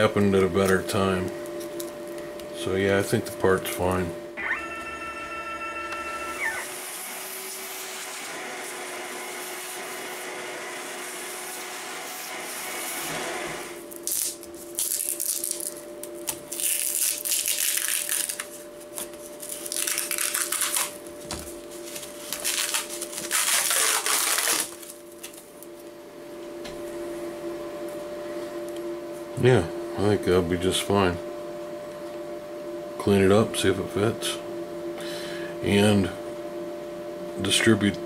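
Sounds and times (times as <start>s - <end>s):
steady background hum: 0.0s - 38.0s
masking tape tearing: 13.9s - 18.6s, 19.4s - 21.0s, 22.2s - 25.4s.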